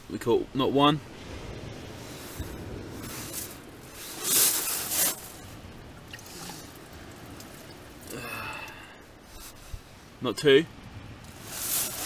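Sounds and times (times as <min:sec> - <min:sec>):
fish handling rustling: 0:02.1 - 0:08.1, 0:11.3 - 0:12.0.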